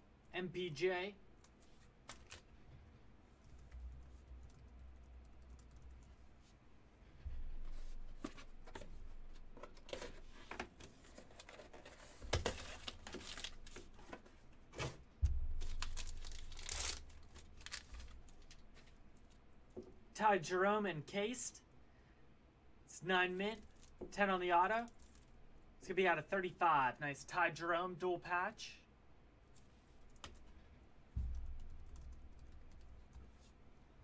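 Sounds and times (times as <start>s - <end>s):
paper tearing and crumpling: 15.6s - 18.1s.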